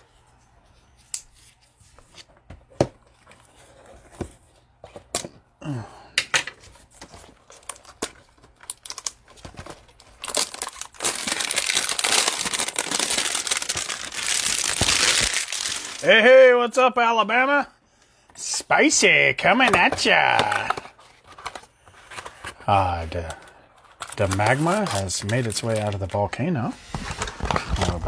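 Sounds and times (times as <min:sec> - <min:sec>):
plastic wrapping crinkling and tearing: 0:07.4 - 0:16.1, 0:23.9 - 0:26.2.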